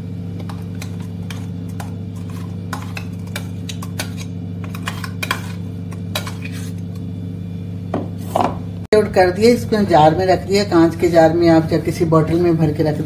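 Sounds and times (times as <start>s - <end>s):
steady low hum: 0.0s - 13.0s
metal spoon scraping steel jar: 2.2s - 6.8s.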